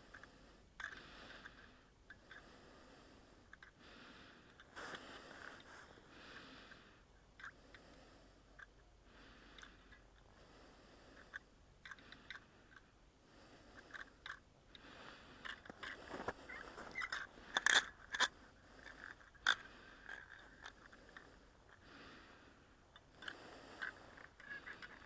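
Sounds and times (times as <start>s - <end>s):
crunches on snow-covered ice: 15.0s - 21.2s.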